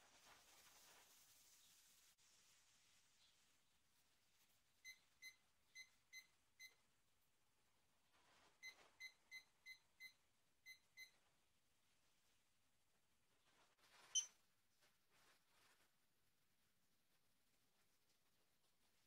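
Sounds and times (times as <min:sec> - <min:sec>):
kitchen timer beeping: 0:04.8 - 0:06.8, 0:08.6 - 0:11.2.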